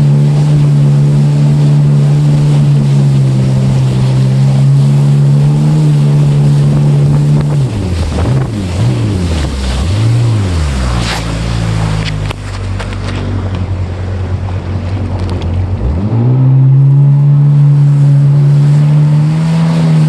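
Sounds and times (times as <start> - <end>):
jet ski engine: 0.0 - 20.0
sharp water splashes: 0.0 - 20.0
water spray: 0.1 - 13.4, 17.6 - 20.0
wind rushing: 5.2 - 15.2.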